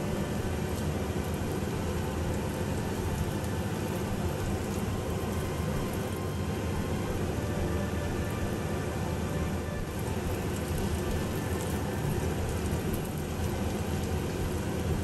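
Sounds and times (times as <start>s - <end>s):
ginger sizzling in hot oil: 0.0s - 8.6s, 9.8s - 15.0s.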